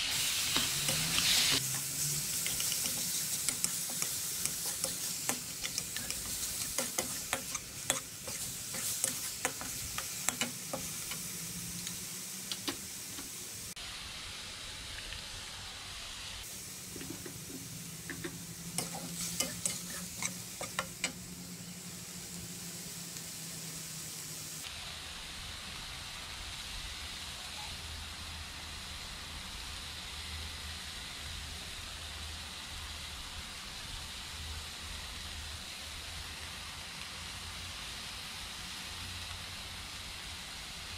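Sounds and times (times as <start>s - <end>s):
metal spatula scraping a wok: 0.0s - 11.3s, 16.9s - 21.2s
meat sizzling in a wok: 0.0s - 40.9s.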